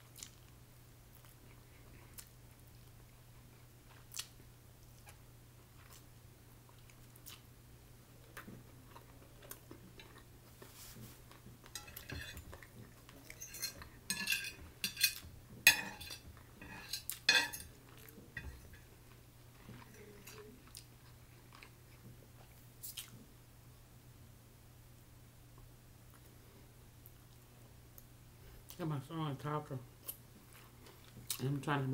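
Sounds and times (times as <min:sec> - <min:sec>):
chewing: 0:00.0 - 0:00.5, 0:01.1 - 0:07.5, 0:08.2 - 0:14.0, 0:16.4 - 0:23.2
fork clinking and scraping a plate: 0:11.7 - 0:18.9.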